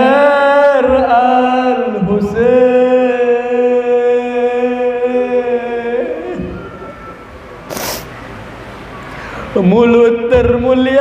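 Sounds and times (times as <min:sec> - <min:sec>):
man chanting a mournful lament: 0:00.0 - 0:06.6, 0:09.5 - 0:11.0.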